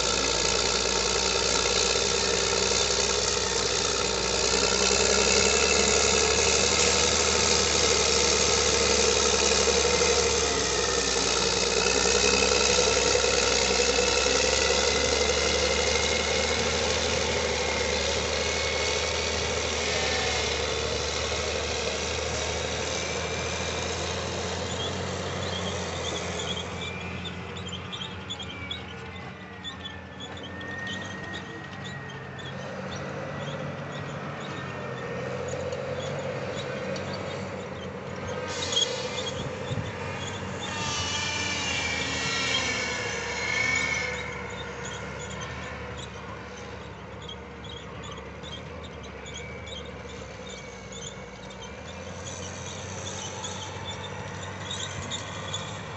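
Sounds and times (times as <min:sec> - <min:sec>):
diesel engine working under load: 0:00.0 - 0:55.9.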